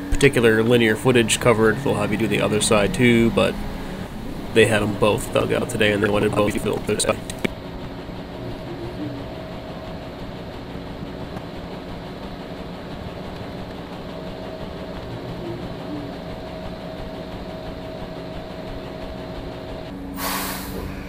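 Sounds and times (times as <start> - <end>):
diesel truck engine idling: 0.0 - 21.0
air brake hiss: 20.2 - 21.0.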